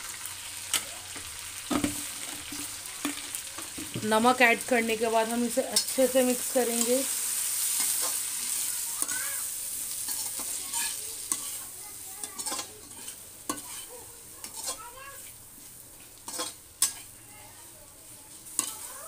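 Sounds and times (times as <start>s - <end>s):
chillies sizzling in hot oil: 0.0s - 19.0s
spatula scraping a pan: 5.8s - 17.2s, 18.2s - 19.0s.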